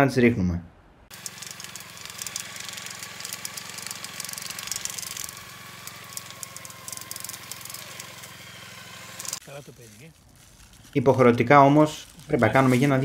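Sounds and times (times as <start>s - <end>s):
small petrol engine humming: 1.1s - 9.6s
beater rattling in branches: 1.1s - 13.0s.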